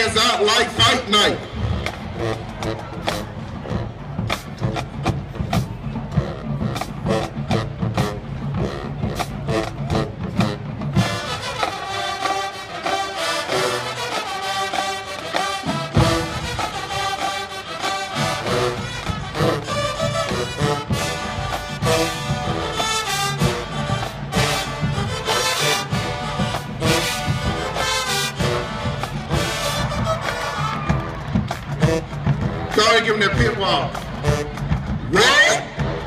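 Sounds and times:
marching band drums: 0:00.0 - 0:36.0
horns playing sustained chords: 0:06.2 - 0:30.6.

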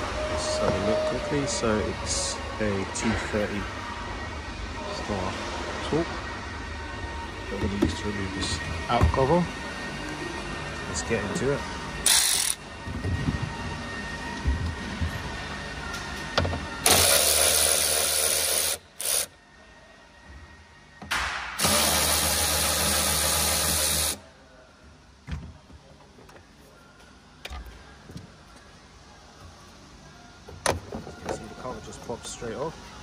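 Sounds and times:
cordless ratchet spinning bolts: 0:12.1 - 0:12.6.

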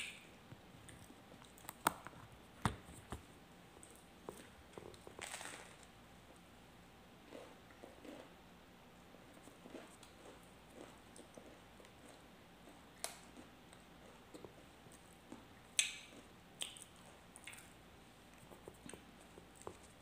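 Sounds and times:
person chewing bread: 0:00.6 - 0:05.7, 0:07.2 - 0:08.4, 0:09.0 - 0:20.0
wet mouth clicks and smacks: 0:15.8 - 0:17.7.

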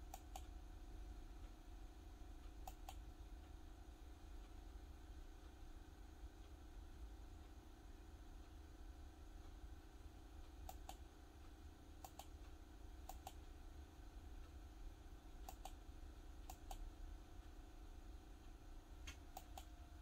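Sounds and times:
computer mouse clicks: 0:00.0 - 0:00.5, 0:02.5 - 0:03.1, 0:10.6 - 0:11.1, 0:12.0 - 0:13.5, 0:15.4 - 0:15.8, 0:16.4 - 0:16.9, 0:19.0 - 0:19.8
low steady hum: 0:00.0 - 0:20.0.

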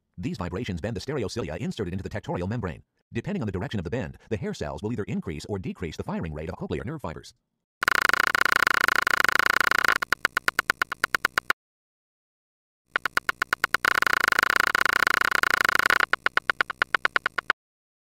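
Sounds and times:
electronic buzzing clicks: 0:07.8 - 0:11.6, 0:12.9 - 0:17.6.

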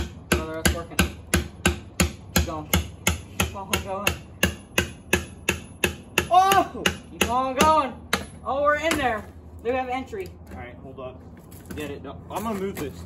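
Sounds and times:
hammer striking steel pry bar: 0:00.0 - 0:09.3.

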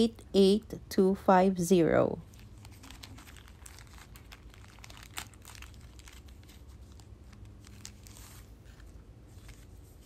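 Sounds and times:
plastic bag crackling: 0:02.2 - 0:10.0.

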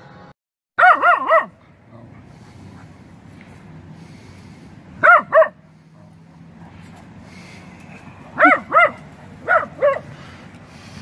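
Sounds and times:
small dog barking: 0:00.8 - 0:01.6, 0:05.0 - 0:05.6, 0:08.4 - 0:10.1.

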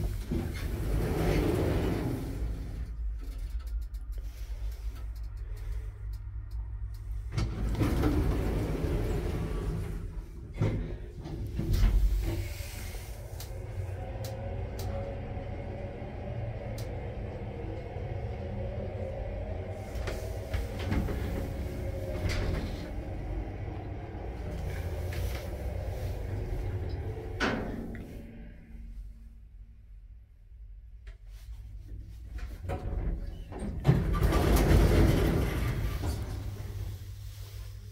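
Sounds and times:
lift low rumble and hum: 0:00.0 - 0:37.9
lift doors shutting with thud: 0:07.2 - 0:28.4, 0:32.5 - 0:37.0.

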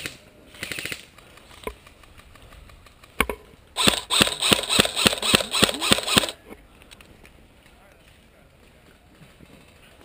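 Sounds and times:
airsoft rifle shots: 0:00.0 - 0:01.1, 0:03.2 - 0:06.4.

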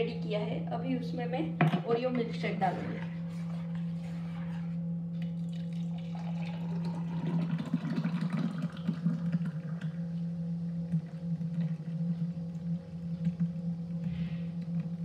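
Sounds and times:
steady low hum: 0:00.0 - 0:15.0
milkshake pouring into a glass: 0:05.2 - 0:10.0.

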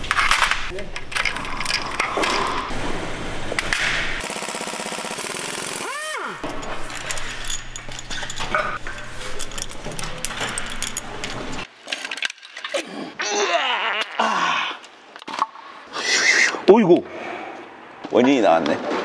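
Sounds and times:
metal tools and bolts clattering: 0:06.4 - 0:12.7.

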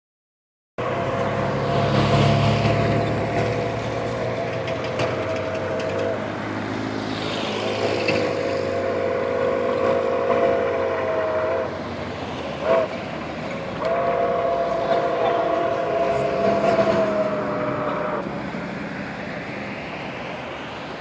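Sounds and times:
steam locomotive chime whistle: 0:07.7 - 0:11.8, 0:13.8 - 0:18.3.

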